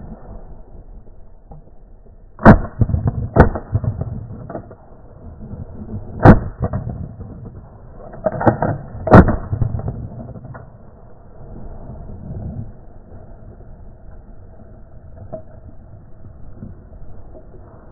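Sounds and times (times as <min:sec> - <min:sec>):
shotgun shots: 0:02.4 - 0:04.6, 0:06.2 - 0:07.0, 0:09.0 - 0:09.8.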